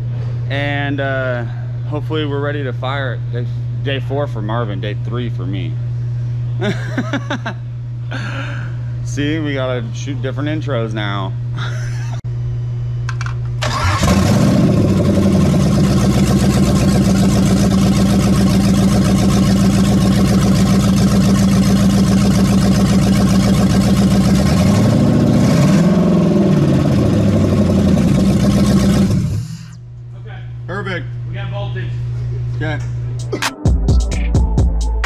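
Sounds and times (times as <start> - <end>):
engine starting and revving: 13.6 - 29.8.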